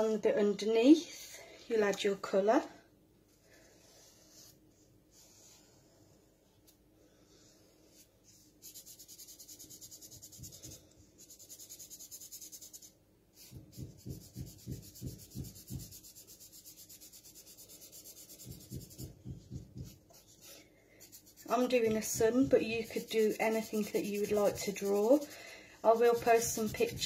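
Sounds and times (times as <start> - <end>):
pen scribbling on paper towel: 8.4 - 27.0.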